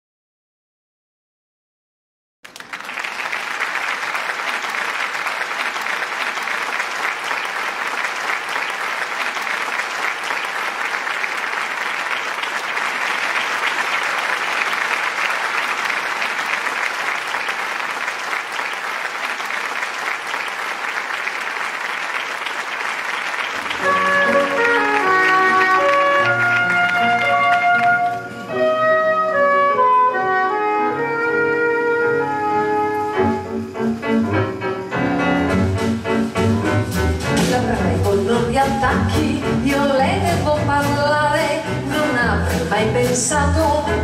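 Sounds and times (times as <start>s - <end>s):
audience applauding: 2.4s - 28.6s
band playing: 23.4s - 44.0s.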